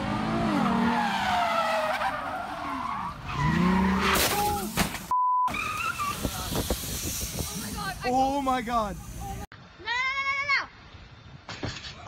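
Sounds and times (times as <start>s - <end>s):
car tyres squealing: 0.0s - 4.8s, 5.5s - 7.2s
censor bleep: 5.1s - 5.5s.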